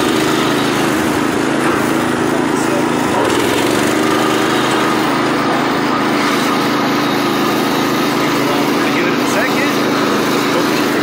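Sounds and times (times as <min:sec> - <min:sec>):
garden tractor engine running: 0:00.0 - 0:11.0.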